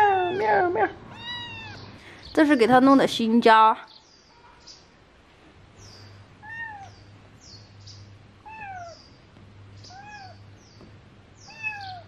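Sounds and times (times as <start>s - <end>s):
kitten meowing: 0.0s - 1.9s, 6.4s - 7.0s, 8.4s - 9.0s, 9.9s - 10.4s, 11.5s - 12.0s.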